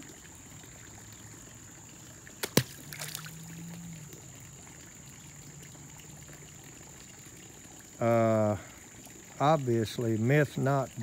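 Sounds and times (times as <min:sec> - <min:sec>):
water splashing and trickling: 0:00.0 - 0:11.0
object plopping into water: 0:02.4 - 0:03.4.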